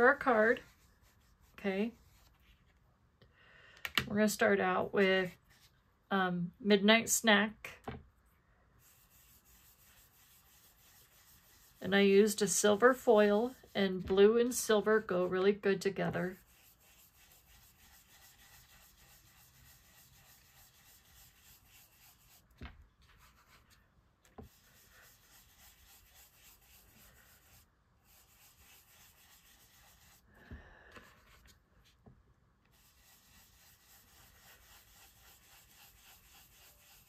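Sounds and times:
ink tool rubbing on cardstock: 16.2 - 22.5, 24.5 - 30.2, 32.7 - 37.0.

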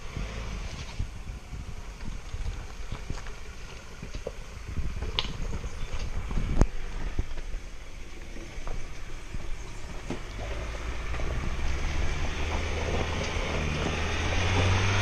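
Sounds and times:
wind on microphone: 0.0 - 7.8
truck engine rumble: 0.0 - 15.0.

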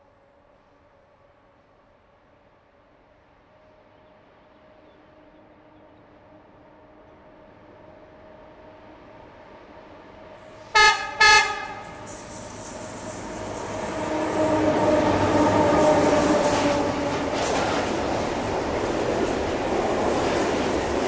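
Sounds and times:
freight train passing: 0.0 - 21.0
locomotive horn blasts: 10.7 - 12.7.

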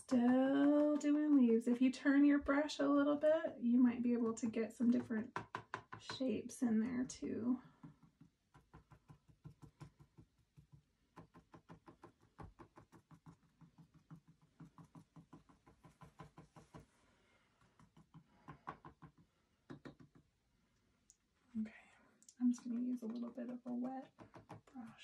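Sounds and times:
paintbrush tapping on canvas: 7.8 - 17.0, 17.7 - 20.3, 22.5 - 25.0.

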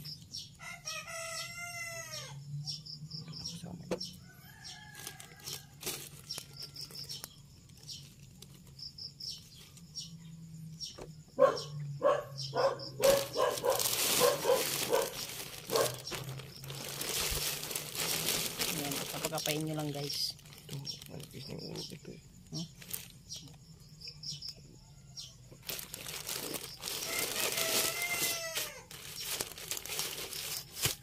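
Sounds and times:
small birds chirping: 0.0 - 30.9
rooster crowing: 0.6 - 2.5, 4.2 - 7.2, 27.0 - 29.0
plastic sheeting crinkling: 13.0 - 21.5, 25.6 - 31.0.

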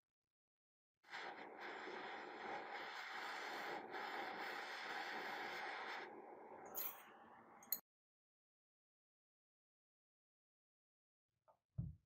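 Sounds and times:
gas torch flame hissing: 1.1 - 7.7.

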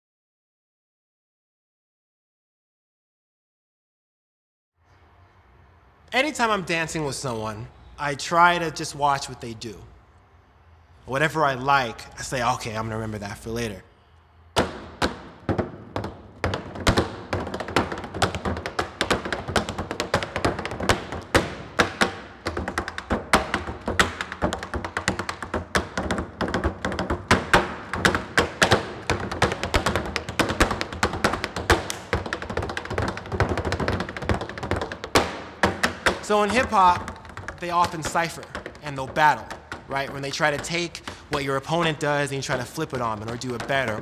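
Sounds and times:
tap shoes on wooden board: 14.6 - 44.0.

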